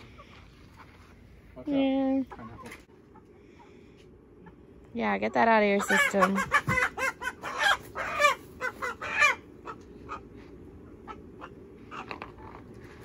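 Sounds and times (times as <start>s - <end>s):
chicken clucking: 2.1s - 3.8s, 4.4s - 12.9s
chicken squawking: 5.4s - 12.6s.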